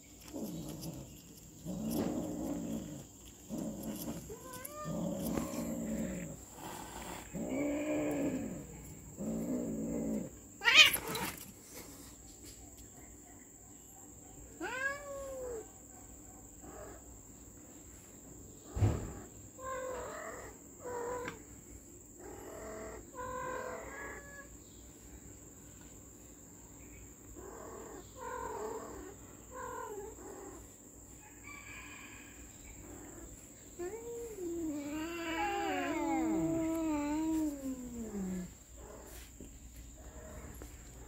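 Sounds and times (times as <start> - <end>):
cat hissing: 3.5 - 8.6
cat meowing: 10.6 - 11.3, 14.6 - 15.6, 33.8 - 38.5.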